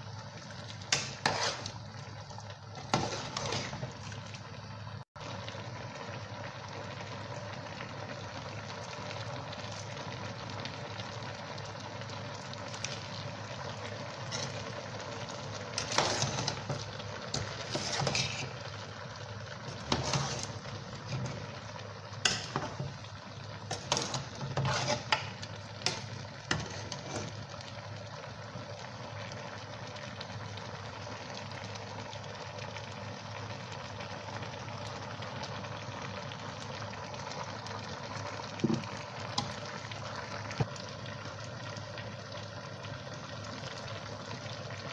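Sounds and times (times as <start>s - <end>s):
utensil clattering in metal pot: 22.2s - 22.9s.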